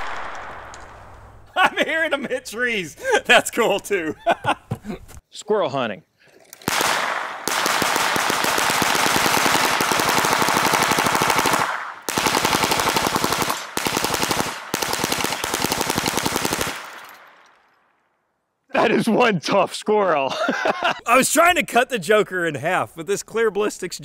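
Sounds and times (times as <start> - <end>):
gatling gun firing bursts: 6.7 - 17.0.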